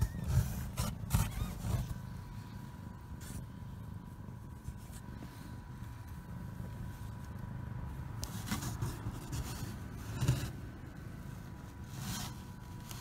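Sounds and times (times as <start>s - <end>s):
phone scraping cardboard box: 0.0s - 2.1s
low steady rumble: 0.0s - 13.0s.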